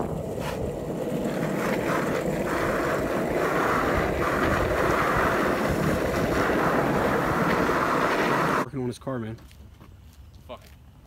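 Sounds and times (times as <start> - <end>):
skateboard wheels rolling on asphalt: 0.0 - 8.6
wind buffeting microphone: 0.0 - 8.6.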